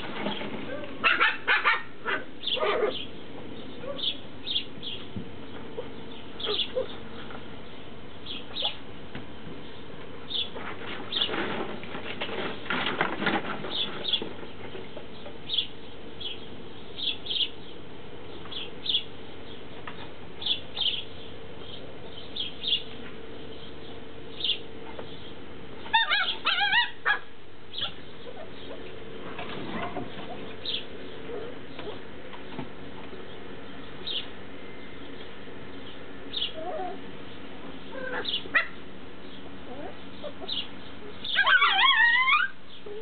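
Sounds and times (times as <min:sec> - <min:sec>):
puppies whining and squeaking: 0:00.7 - 0:03.1, 0:05.7 - 0:07.0, 0:25.8 - 0:28.8, 0:29.7 - 0:32.1, 0:36.4 - 0:37.1, 0:37.9 - 0:38.8, 0:39.6 - 0:43.0
puppies yelping: 0:00.7 - 0:04.7, 0:05.7 - 0:07.1, 0:25.8 - 0:28.8, 0:29.7 - 0:32.1, 0:36.3 - 0:37.1, 0:37.9 - 0:38.8, 0:39.6 - 0:43.0.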